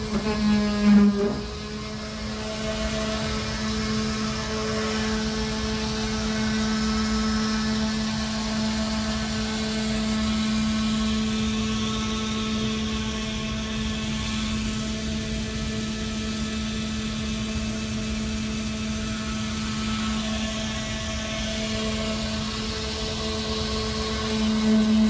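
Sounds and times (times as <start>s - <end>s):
motor humming: 0.0s - 13.0s, 18.7s - 25.0s.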